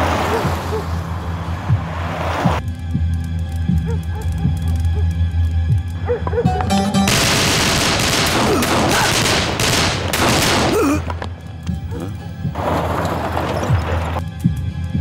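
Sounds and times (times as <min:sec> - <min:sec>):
low droning music: 0:00.5 - 0:15.0
rapid gunfire: 0:07.1 - 0:10.9.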